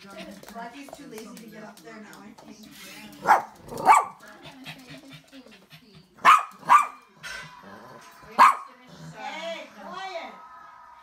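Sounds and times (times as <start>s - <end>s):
dog barking: 3.2s - 4.2s, 6.2s - 7.0s, 8.4s - 8.7s.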